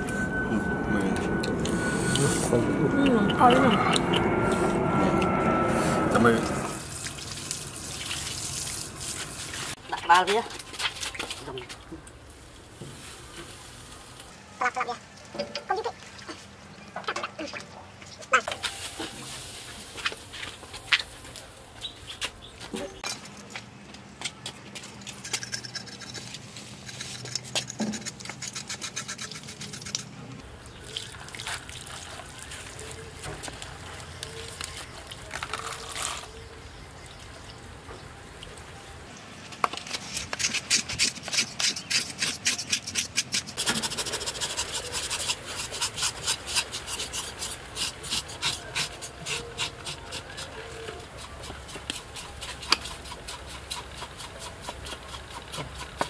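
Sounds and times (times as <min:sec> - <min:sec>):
water pouring: 0:06.8 - 0:09.8, 0:30.7 - 0:32.8
knives scraping skin: 0:25.0 - 0:30.1, 0:39.9 - 0:50.5.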